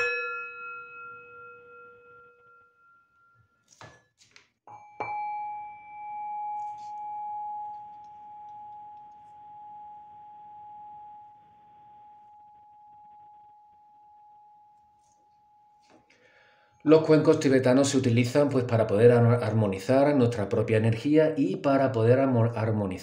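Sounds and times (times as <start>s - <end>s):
singing bowl ringing: 0.0s - 4.0s, 4.7s - 16.8s.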